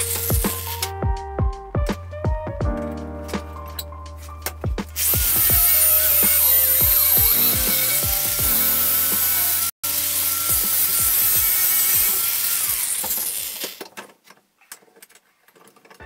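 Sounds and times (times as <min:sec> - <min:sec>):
angle grinder grinding steel: 0:00.0 - 0:00.9, 0:05.0 - 0:13.8.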